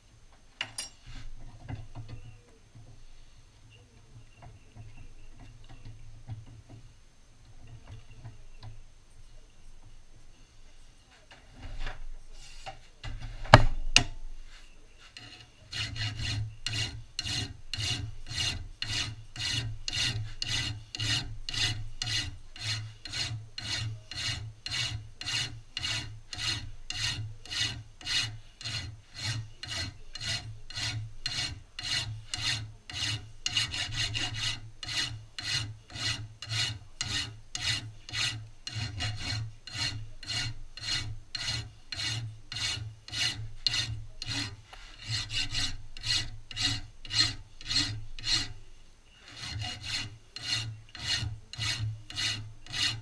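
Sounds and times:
hand file rasping on metal: 0:14.0 - 0:53.0.

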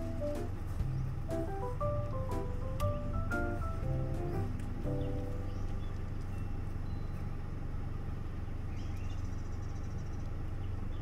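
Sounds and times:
low engine hum: 0:00.0 - 0:11.0
bird chirps: 0:04.8 - 0:07.5, 0:08.4 - 0:11.0.

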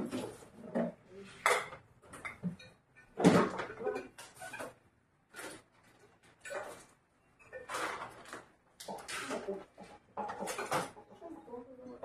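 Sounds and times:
dishes clinking and clattering: 0:00.0 - 0:04.8, 0:06.3 - 0:09.5, 0:10.2 - 0:11.1.

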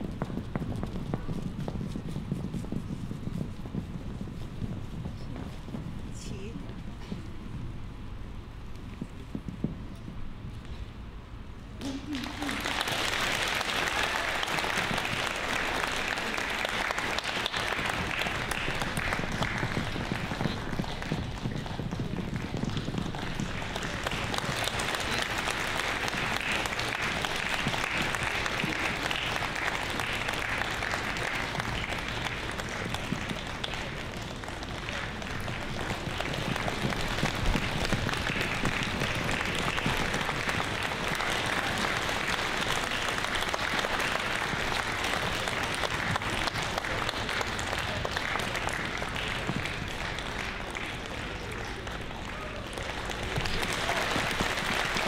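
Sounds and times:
audience applauding: 0:11.8 - 0:55.0.

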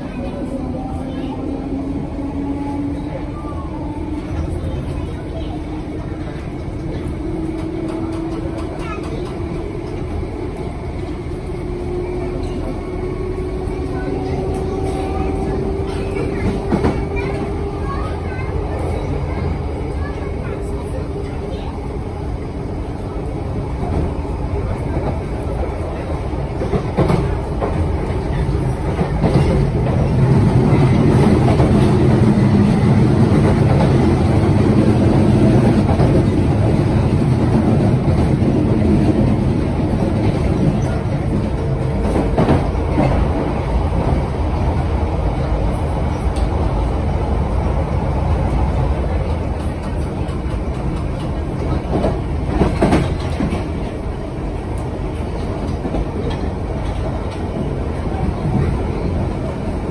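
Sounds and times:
train rumbling on track: 0:00.0 - 0:59.9.

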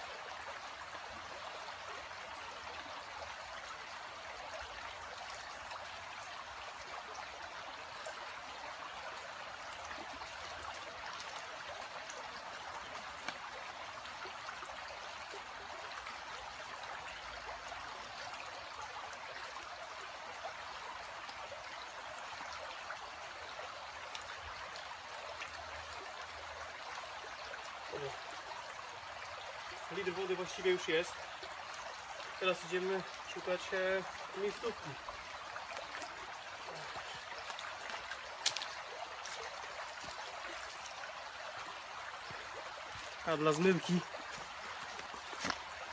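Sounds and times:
shallow stream flowing: 0:00.0 - 0:45.9.

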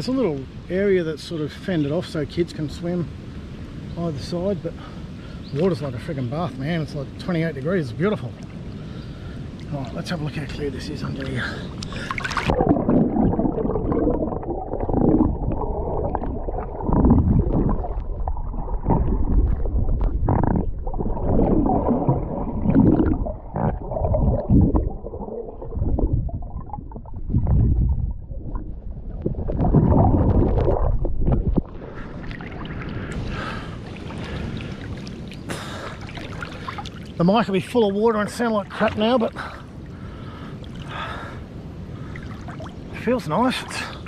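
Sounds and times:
muffled underwater gurgling: 0:09.7 - 0:37.0.

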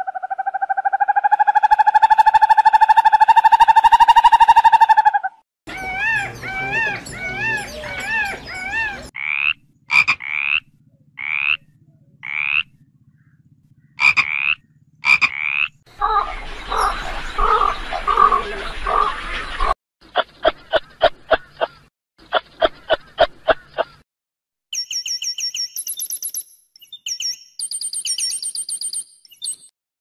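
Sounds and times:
frog calling: 0:00.0 - 0:19.2
wavering animal calls: 0:00.0 - 0:19.8.

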